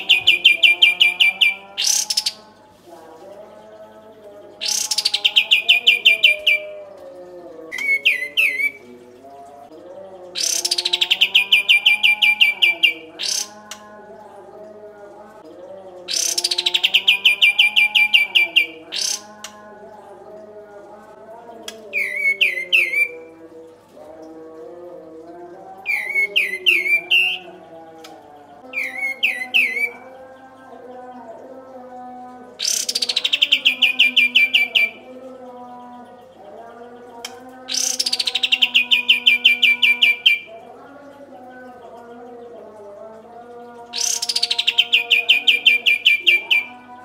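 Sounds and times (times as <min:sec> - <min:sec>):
bulbul singing: 0:00.0 - 0:47.0.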